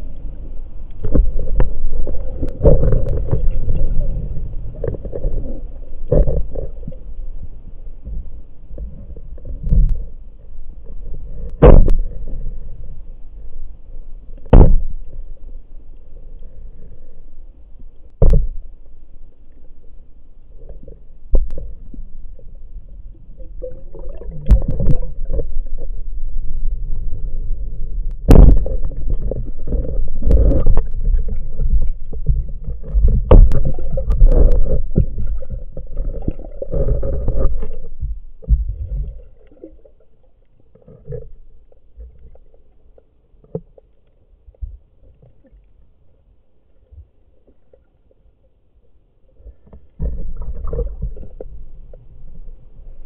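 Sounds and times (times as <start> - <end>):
underwater rushing rumble: 0.0 - 13.5, 20.6 - 40.0.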